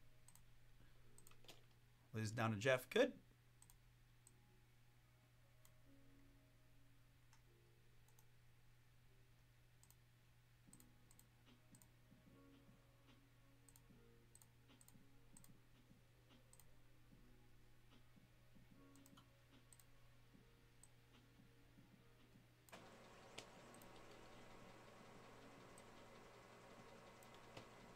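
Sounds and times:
computer mouse clicks: 0.2 - 0.5, 1.2 - 1.8, 3.6 - 4.4, 8.0 - 8.3, 9.8 - 10.0, 10.7 - 11.9, 13.7 - 15.6, 16.3 - 16.7, 18.9 - 19.9, 22.7 - 27.9.

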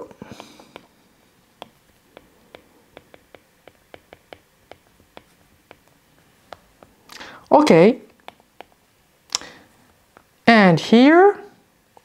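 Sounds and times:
stylus tapping on glass screen: 1.6 - 7.0, 8.2 - 8.8.

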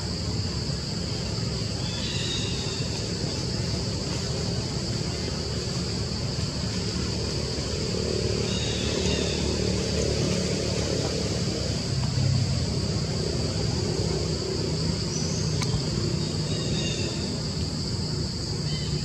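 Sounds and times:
high-pitched insect drone: 0.0 - 19.0
click: 15.6 - 15.8.

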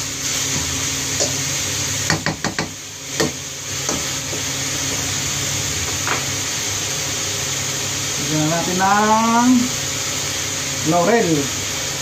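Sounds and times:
food sizzling in a frying pan: 0.0 - 12.0
metal ladle knocking on pan: 2.1 - 4.1.

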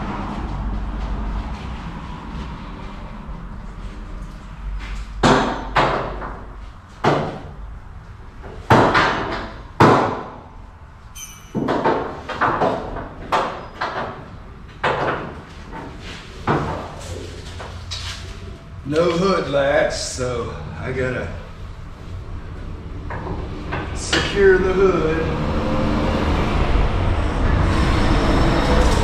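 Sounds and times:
low rumble: 0.0 - 5.2
loud knocks and bangs: 5.2 - 6.4, 7.0 - 7.6, 8.7 - 10.5
high squeak: 11.1 - 11.6.

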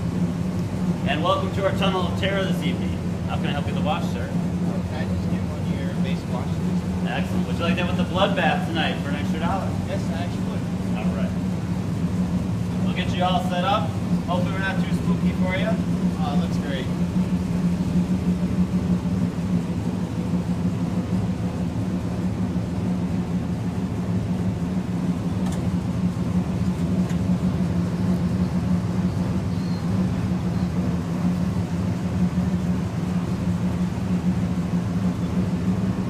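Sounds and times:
car wash machinery hum: 0.0 - 36.0.

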